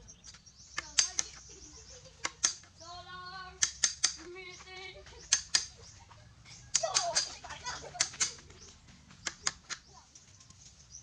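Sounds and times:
hammer striking a nail: 3.6s - 4.3s.

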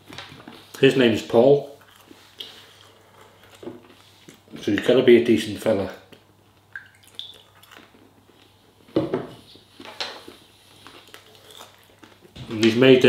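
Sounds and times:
objects knocking on a table: 9.0s - 9.4s.

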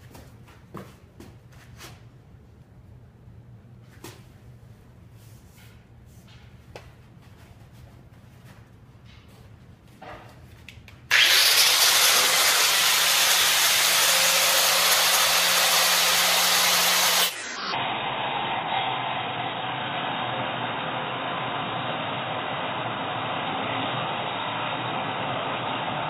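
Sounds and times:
angle grinder cutting steel: 11.1s - 21.0s.

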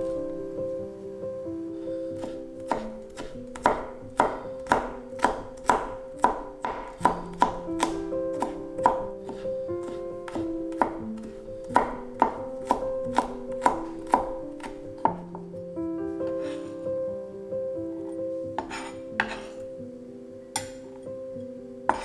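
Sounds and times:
background music with held notes: 0.0s - 22.0s
knife chopping on cutting board: 2.2s - 15.3s, 18.6s - 19.6s.

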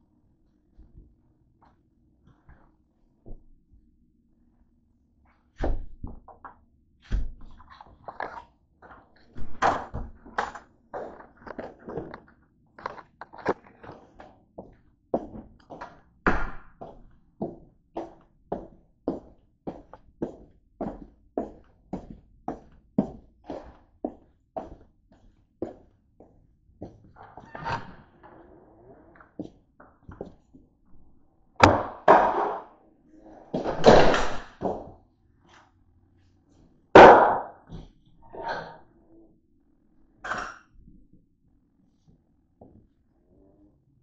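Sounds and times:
footsteps on plank floor: 16.8s - 27.0s.

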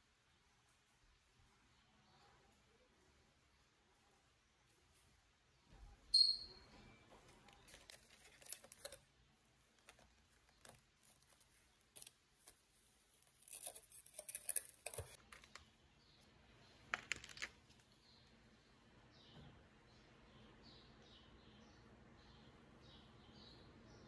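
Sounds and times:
scratchy rustling handling sounds: 7.1s - 15.8s.

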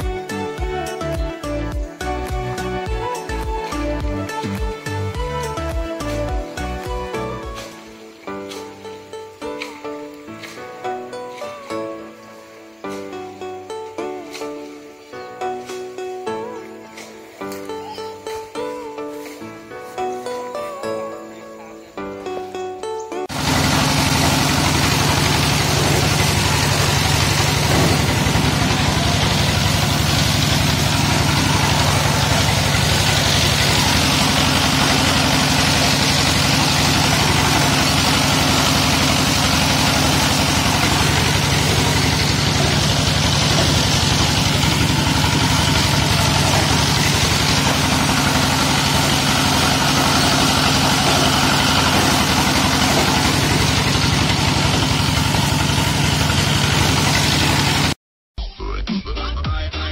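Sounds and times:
diesel engine running: 0.0s - 12.0s, 23.2s - 58.0s.

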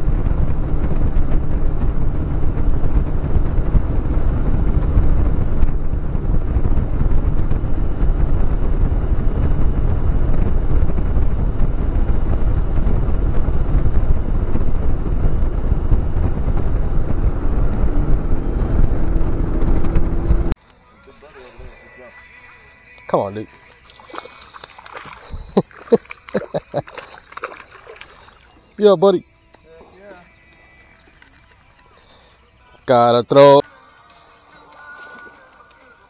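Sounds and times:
outboard motor boat at speed: 0.0s - 20.6s, 23.6s - 28.7s
wind buffeting microphone: 0.0s - 20.6s, 24.1s - 28.7s.

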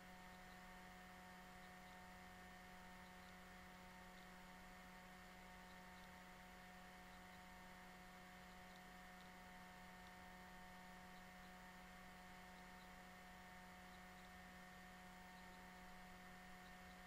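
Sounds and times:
faint electrical hum with hiss: 0.0s - 17.0s.

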